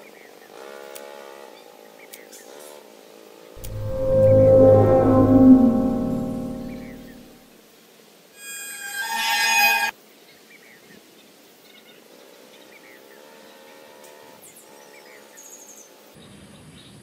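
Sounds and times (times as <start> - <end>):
music held note: 3.6 - 7.3.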